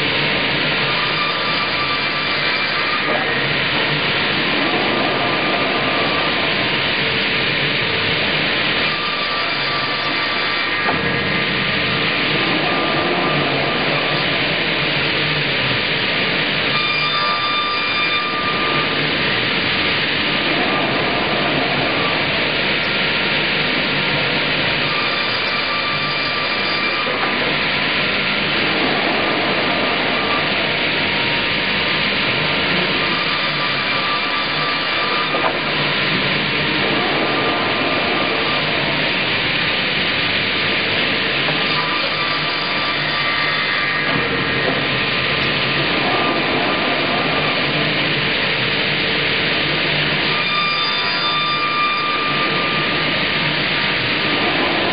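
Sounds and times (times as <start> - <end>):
circular saw cutting timber: 8.8 - 11.0, 32.7 - 36.2, 41.4 - 46.4.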